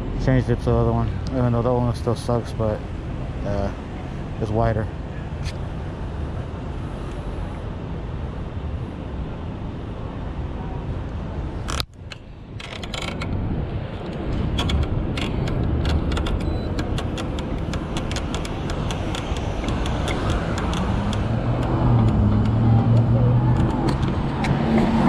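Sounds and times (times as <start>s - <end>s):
bike road and wind rumble: 0.0s - 25.0s
bike mechanical clicks: 14.0s - 24.9s.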